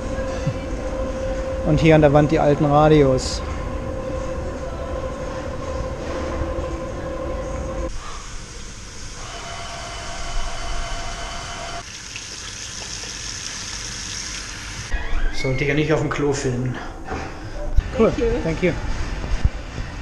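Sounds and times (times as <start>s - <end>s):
tap water running over hands: 11.8s - 14.8s.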